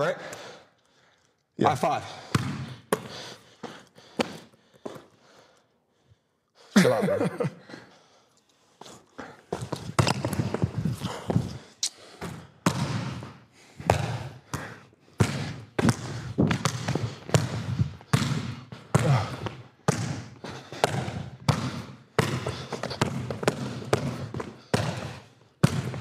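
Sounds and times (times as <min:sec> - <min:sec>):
basketball bouncing on court floor: 0:02.2 - 0:03.1, 0:09.5 - 0:11.6, 0:12.2 - 0:26.0.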